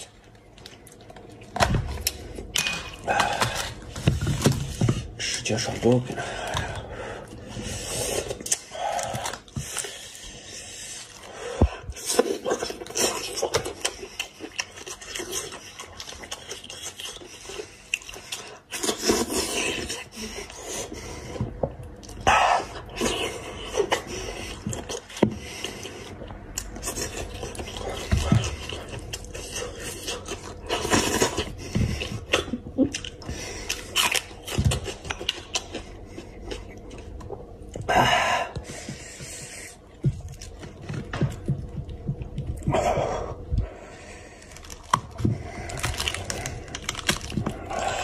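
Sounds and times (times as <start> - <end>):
wet chewing and lip smacking: 6.4 - 21.0, 21.8 - 37.9
clicks and scrapes of meat pulling: 11.0 - 37.8, 44.4 - 48.0.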